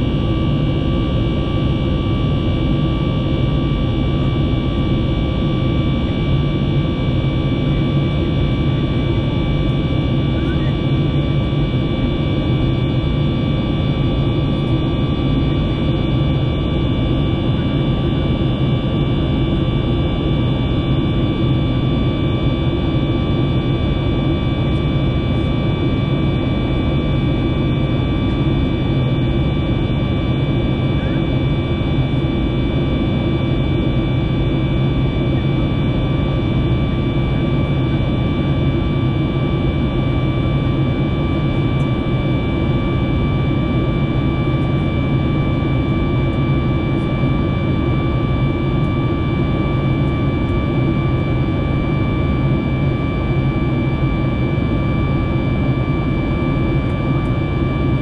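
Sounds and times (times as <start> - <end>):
high engine whine: 0.0 - 58.0
jet engine and airflow rumble: 0.0 - 58.0.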